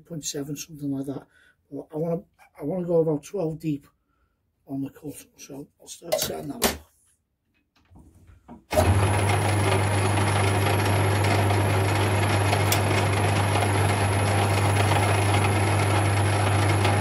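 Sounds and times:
lathe motor humming: 8.7 - 17.0.

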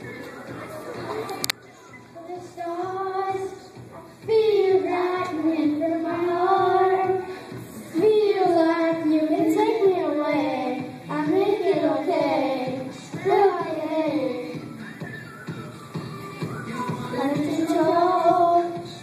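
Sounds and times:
children singing into microphones: 2.2 - 14.6, 16.7 - 19.0.

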